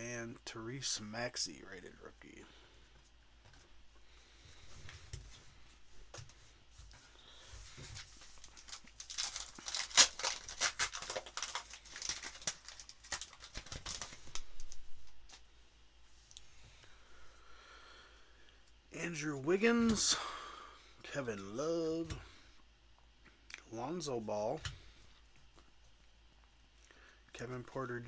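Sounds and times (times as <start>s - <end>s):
foil wrapper tearing and crinkling: 8.4s - 14.8s.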